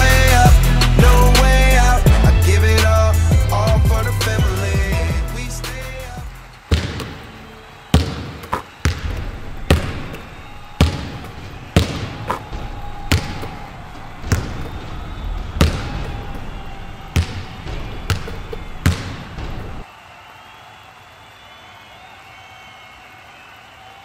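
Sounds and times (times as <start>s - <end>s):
basketball bouncing on hardwood: 6.7s - 7.2s, 8.0s - 16.5s, 17.1s - 19.8s.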